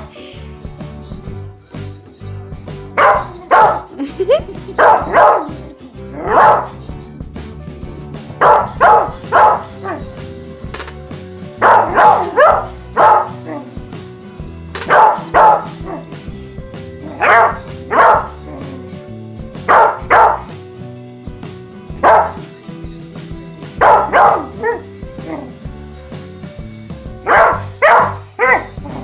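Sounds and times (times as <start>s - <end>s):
background music: 0.0s - 29.0s
dog barking: 3.0s - 3.9s, 4.8s - 5.5s, 6.2s - 6.8s, 8.4s - 10.0s, 11.6s - 13.7s, 14.9s - 16.1s, 17.1s - 18.4s, 19.7s - 20.5s, 22.0s - 22.4s, 23.8s - 25.5s, 27.2s - 29.0s.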